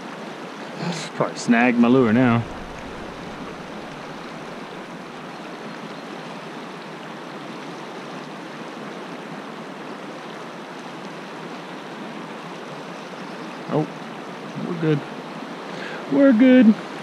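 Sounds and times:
river rushing over rocks: 0.0s - 13.0s.

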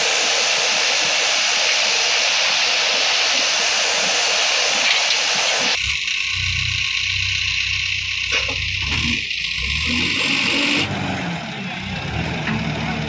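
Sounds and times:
loud steady high hiss: 0.0s - 10.8s
diesel engine running: 0.0s - 13.0s.

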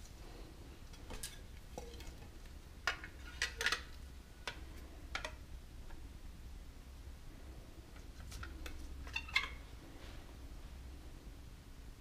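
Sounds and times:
low steady hum: 0.0s - 12.0s
clicks and scrapes of handling: 7.9s - 9.6s.

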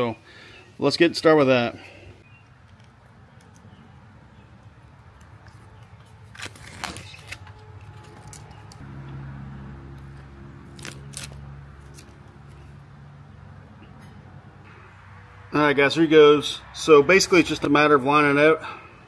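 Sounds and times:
adhesive film peeling: 5.2s - 8.8s, 10.6s - 12.6s.

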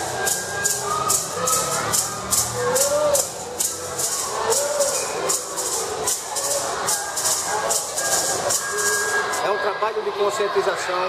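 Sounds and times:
rattles shaken in a steady beat: 0.0s - 9.4s.

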